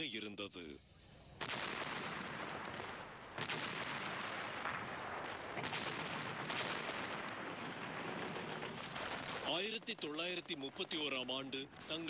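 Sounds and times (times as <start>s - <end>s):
sharp gunfire reports: 1.4s - 9.6s
artillery fire and explosions: 1.4s - 12.0s.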